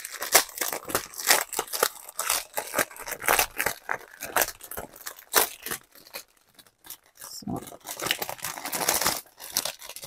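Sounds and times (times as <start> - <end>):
plastic packaging crinkling: 0.0 - 10.0.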